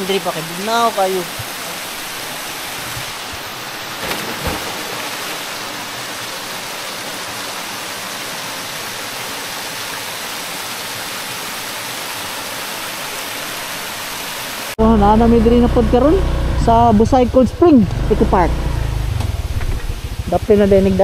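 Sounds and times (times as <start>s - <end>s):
waterfalls pouring into pool: 0.0s - 14.8s, 19.2s - 21.0s
person jumping into water: 4.0s - 5.6s.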